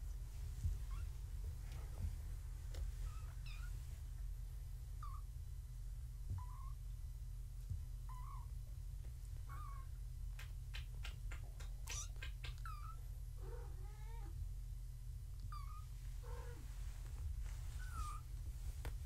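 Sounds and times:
steady low hum: 0:00.0 - 0:19.0
kittens mewing: 0:11.5 - 0:14.3.

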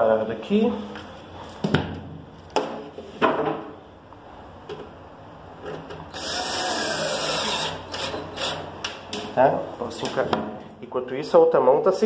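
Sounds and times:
cordless drill driving screw: 0:06.1 - 0:08.7.

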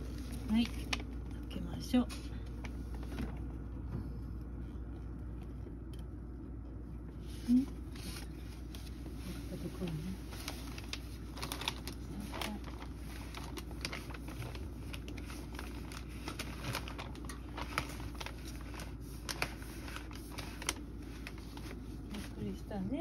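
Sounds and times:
fan heater humming: 0:00.0 - 0:23.0.

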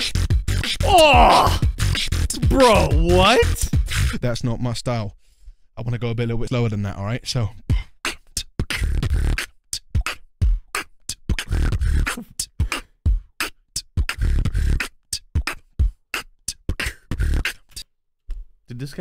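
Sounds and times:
person beatboxing: 0:00.0 - 0:04.2, 0:07.7 - 0:17.9.

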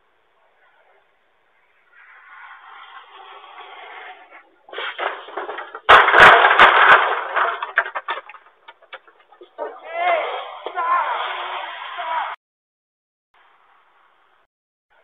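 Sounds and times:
car crashing into wooden fence: 0:03.1 - 0:09.8
wood debris cracking and rattling: 0:04.7 - 0:09.8.

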